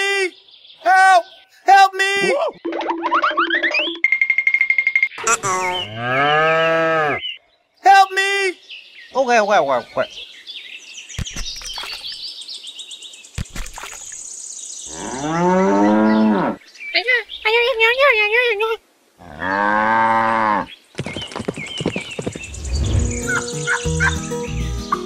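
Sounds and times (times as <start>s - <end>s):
cow mooing: 5.6s - 7.2s.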